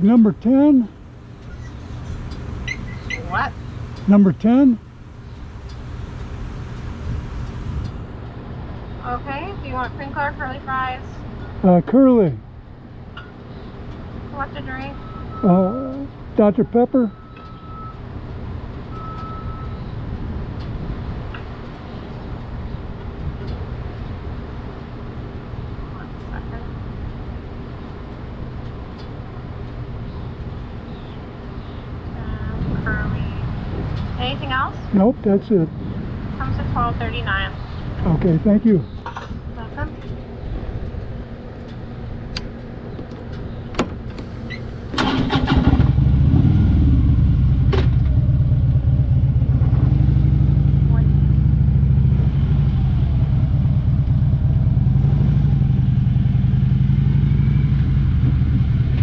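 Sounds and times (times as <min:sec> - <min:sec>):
motorcycle engine rumbling: 0:00.0 - 0:59.0
low hum: 0:18.9 - 0:59.0
motorcycle starter cranking: 0:44.1 - 0:46.3
motorcycle engine idling: 0:44.6 - 0:59.0.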